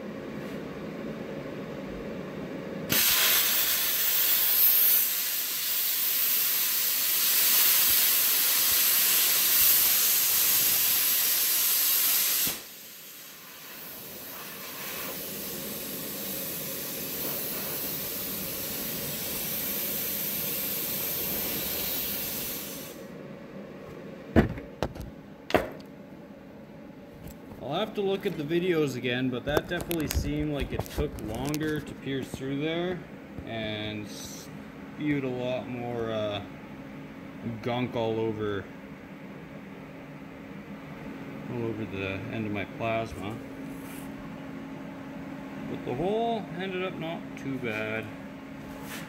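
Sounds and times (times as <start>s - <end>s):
plasma cutter hissing: 2.9s - 23.1s.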